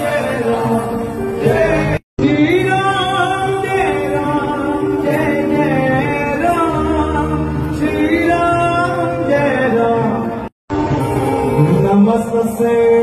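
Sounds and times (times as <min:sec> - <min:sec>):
men singing devotional song: 0:00.0 - 0:10.5.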